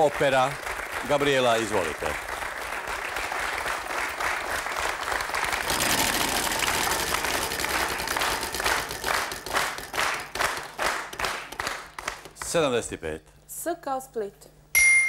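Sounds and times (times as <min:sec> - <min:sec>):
audience applauding: 0:00.0 - 0:12.7.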